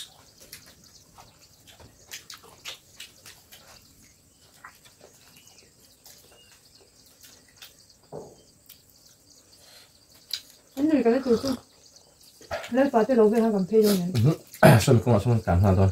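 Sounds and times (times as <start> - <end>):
people eating wet smacks: 0.0 - 7.9, 10.1 - 10.8, 13.3 - 15.1.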